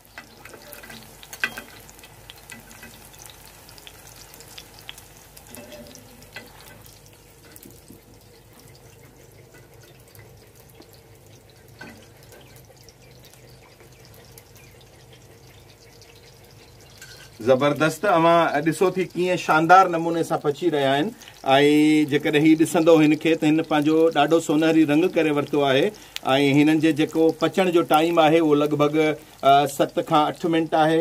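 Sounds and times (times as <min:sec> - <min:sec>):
food sizzling in oil: 0:00.0 - 0:31.0
metal spatula clicking on pan: 0:00.1 - 0:03.0.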